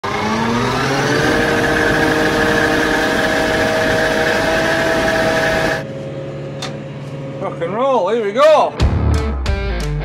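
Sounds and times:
engine whine: 0:00.0 - 0:07.8.

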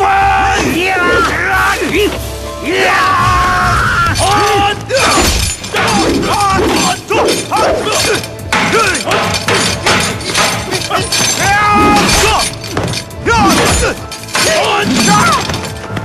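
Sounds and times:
music: 0:00.0 - 0:16.0
people shouting: 0:00.0 - 0:16.0
staff strikes and clashes: 0:04.0 - 0:16.0.

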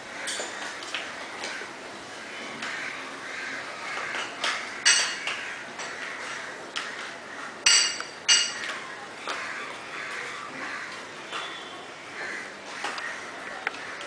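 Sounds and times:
sharp metallic clinks: 0:07.7 - 0:08.7.

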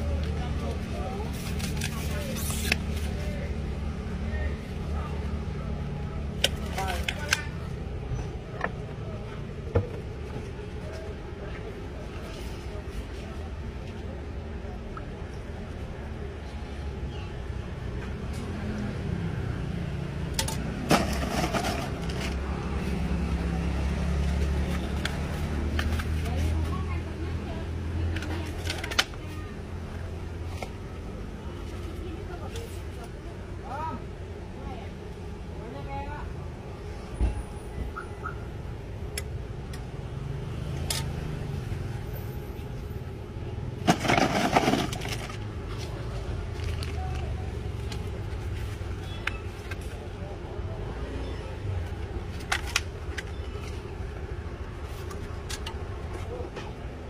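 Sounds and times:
street traffic rumble: 0:00.0 - 0:57.0
plastic and styrofoam rustling: 0:00.6 - 0:03.5, 0:20.8 - 0:23.2, 0:43.8 - 0:50.0.

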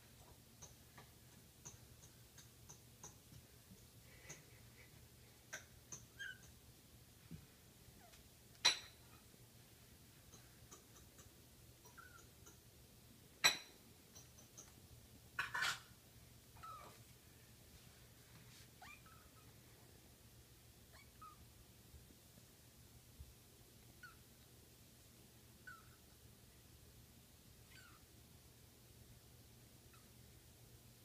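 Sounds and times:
kitten meowing: 0:27.7 - 0:28.0.

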